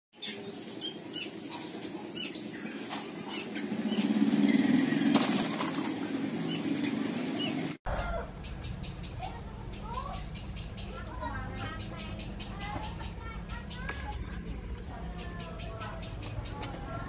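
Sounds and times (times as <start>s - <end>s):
small birds chirping: 0.1s - 17.0s
dove wings fluttering: 0.3s - 7.8s.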